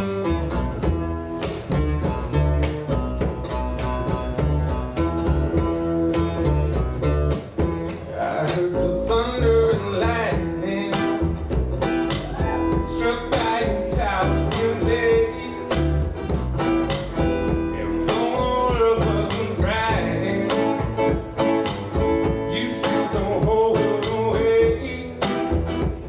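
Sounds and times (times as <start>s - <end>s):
acoustic guitar strumming: 0.0s - 26.0s
plucked upright bass: 0.0s - 26.0s
person singing: 12.2s - 16.1s, 17.6s - 21.2s, 22.2s - 25.6s.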